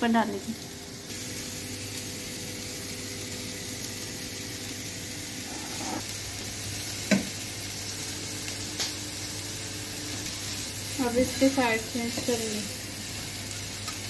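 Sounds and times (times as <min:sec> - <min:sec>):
food sizzling on iron pan: 0:00.0 - 0:14.0.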